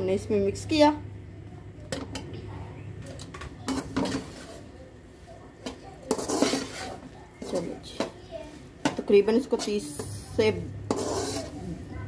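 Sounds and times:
steel ladle scraping wok: 0:03.6 - 0:04.8, 0:05.6 - 0:08.1, 0:08.8 - 0:11.9.

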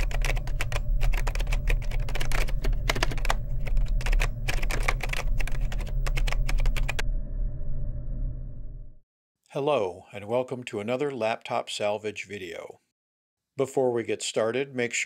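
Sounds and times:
keyboard typing clicks: 0:00.0 - 0:07.0
steady low hum: 0:00.0 - 0:09.0.

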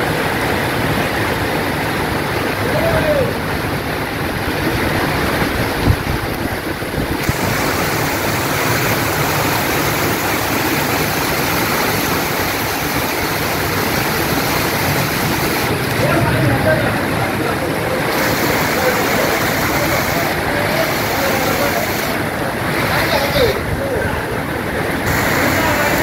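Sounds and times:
heavy rain pouring: 0:00.0 - 0:26.0.

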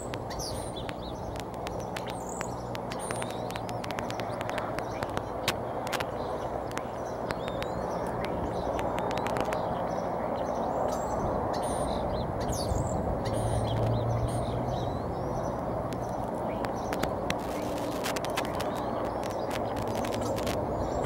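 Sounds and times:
small clicks: 0:00.0 - 0:09.9, 0:15.5 - 0:21.0.

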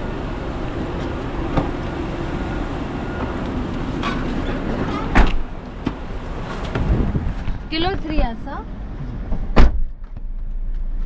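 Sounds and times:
rumble of idling engines and traffic: 0:00.0 - 0:11.0
car door slamming: 0:05.0 - 0:06.0, 0:09.3 - 0:09.9.

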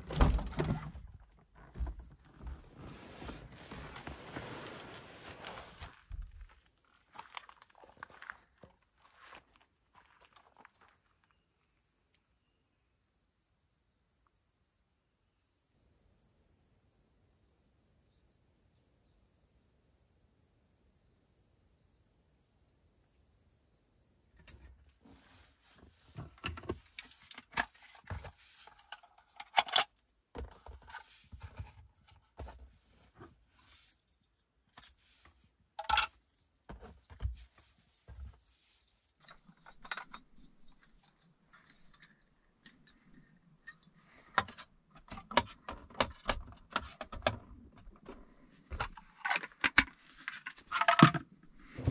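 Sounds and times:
camping gear clattering: 0:00.0 - 0:08.6, 0:24.4 - 0:34.0, 0:35.8 - 0:51.9
night insects chirping: 0:00.0 - 0:25.0.

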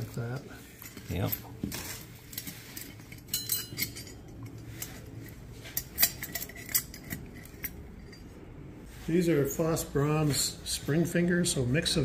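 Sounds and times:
metal parts clinking together: 0:00.1 - 0:08.3.

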